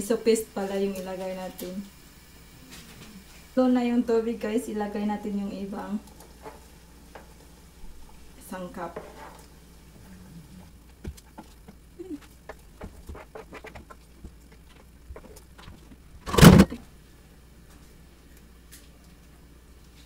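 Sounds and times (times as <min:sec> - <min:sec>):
utensil scraping cutting board: 0:08.9 - 0:09.4, 0:12.8 - 0:14.0.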